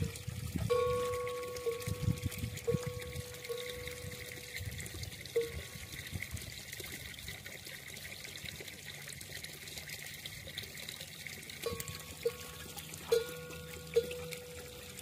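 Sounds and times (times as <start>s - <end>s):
water pouring into a trough: 0.0s - 15.0s
faint steady tone: 11.6s - 15.0s.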